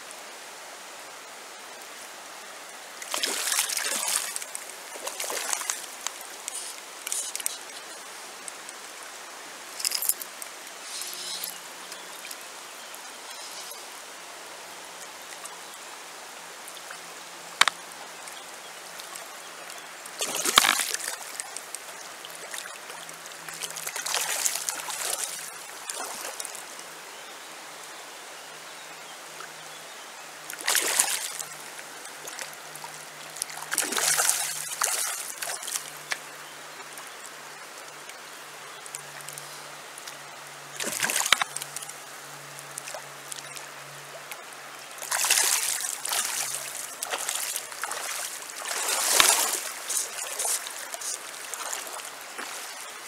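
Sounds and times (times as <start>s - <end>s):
river running over stones: 0.0s - 53.0s
water splashing: 3.0s - 8.0s, 20.1s - 26.7s, 30.5s - 36.3s, 40.0s - 42.0s, 42.7s - 53.0s.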